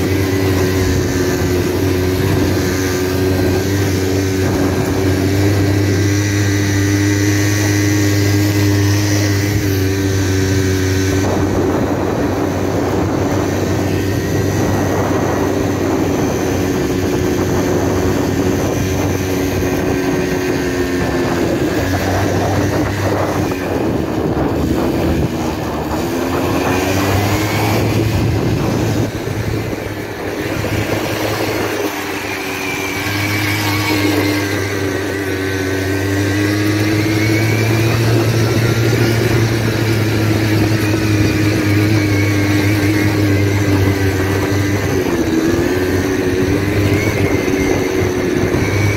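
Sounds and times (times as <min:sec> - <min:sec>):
quad bike engine running: 0:00.0 - 0:48.9.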